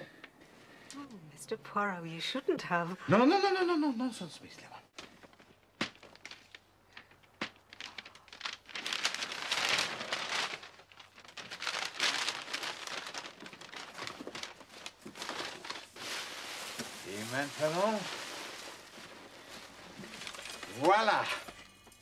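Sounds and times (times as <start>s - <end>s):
wrapping paper tearing and crumpling: 5.0s - 21.6s.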